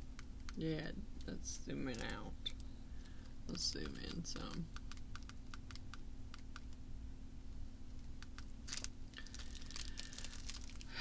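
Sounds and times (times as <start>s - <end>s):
steady low hum: 0.0s - 11.0s
rustle of handled objects: 8.6s - 11.0s.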